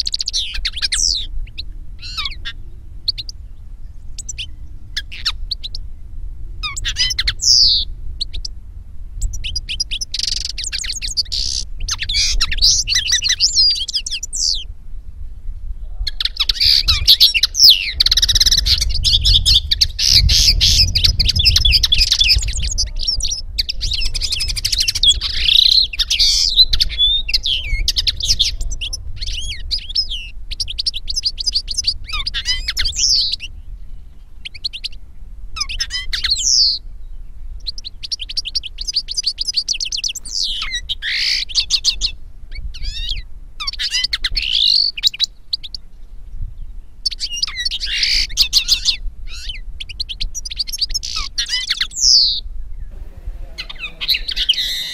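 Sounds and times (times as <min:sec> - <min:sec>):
finch song twittering: 0:00.0 - 0:05.9, 0:06.6 - 0:08.6, 0:09.2 - 0:14.7, 0:16.0 - 0:35.0, 0:35.6 - 0:45.9, 0:47.0 - 0:54.9
steady low rumble: 0:00.4 - 0:32.2, 0:51.9 - 0:54.9.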